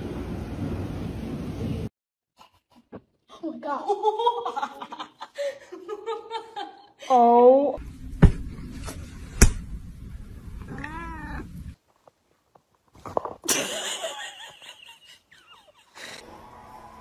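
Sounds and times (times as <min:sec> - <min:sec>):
rustling noise: 0:07.8 - 0:10.7
cat meowing: 0:10.6 - 0:11.8.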